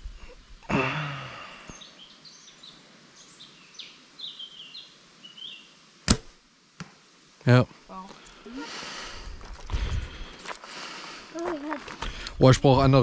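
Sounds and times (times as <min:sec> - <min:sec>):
birds chirping: 0:00.8 - 0:05.8.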